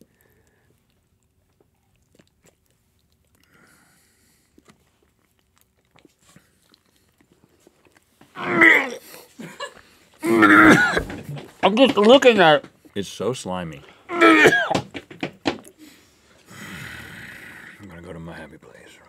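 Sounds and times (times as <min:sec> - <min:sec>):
wet chewing clicks: 0:00.0 - 0:12.2
man gagging with groans: 0:08.4 - 0:09.6, 0:10.2 - 0:11.5, 0:14.1 - 0:14.8.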